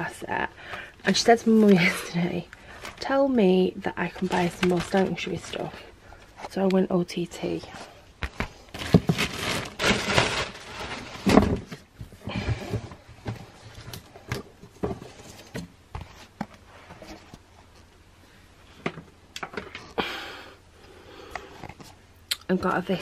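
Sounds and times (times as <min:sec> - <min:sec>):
cardboard box rustling and knocking: 0:08.2 - 0:13.5.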